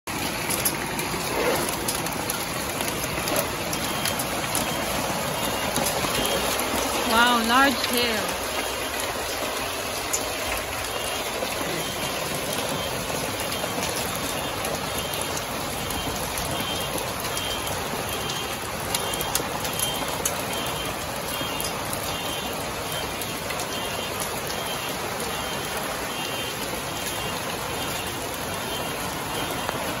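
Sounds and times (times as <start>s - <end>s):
hail and heavy rain on roof: 0.1s - 30.0s.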